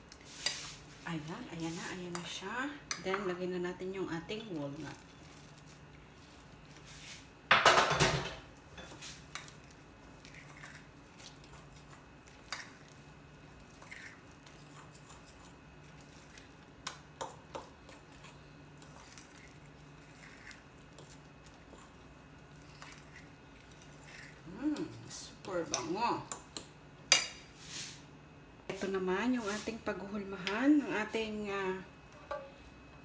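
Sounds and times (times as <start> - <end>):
spoon stirring thick batter: 8.6 - 27.3.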